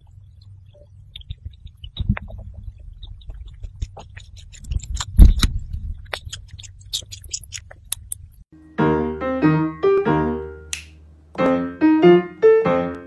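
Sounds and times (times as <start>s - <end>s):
hamster chewing: 0.0s - 8.4s
steady low hum: 0.0s - 8.8s.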